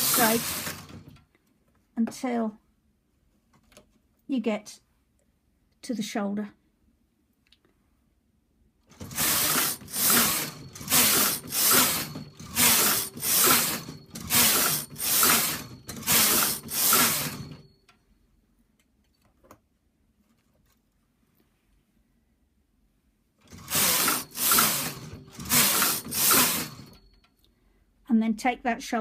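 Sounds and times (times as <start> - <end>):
knitting machine carriage sliding: 0.0 - 1.2, 8.9 - 17.7, 23.4 - 27.1.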